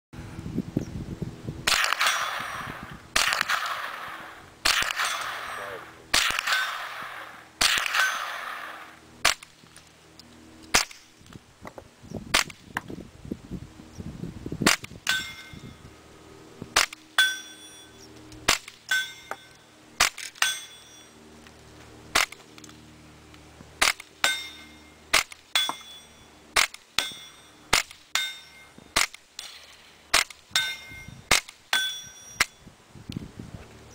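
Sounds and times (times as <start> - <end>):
suppressed rifle shots with crack: 1.7 - 9.5.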